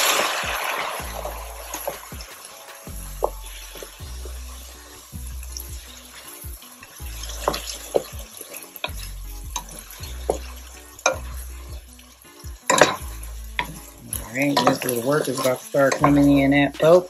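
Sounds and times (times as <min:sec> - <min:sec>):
light sizzle: 0:00.0 - 0:17.0
soft background music: 0:00.0 - 0:17.0
spoon scraping and knocking pot: 0:07.2 - 0:08.2, 0:12.7 - 0:16.7.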